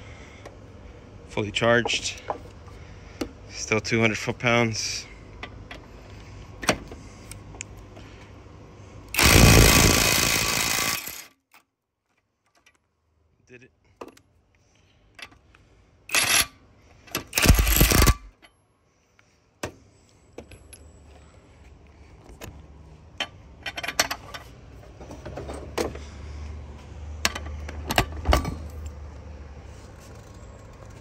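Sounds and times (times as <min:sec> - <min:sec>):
impact wrench hammering: 0:09.2 - 0:11.3, 0:17.2 - 0:18.4.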